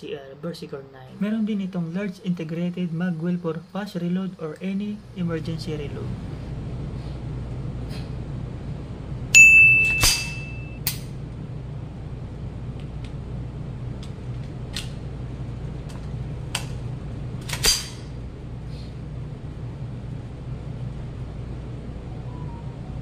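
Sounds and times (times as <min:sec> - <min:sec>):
low ventilation hum: 0:00.0 - 0:23.0
metallic gun handling clicks: 0:17.4 - 0:18.1
electronic notification chime: 0:22.1 - 0:23.0.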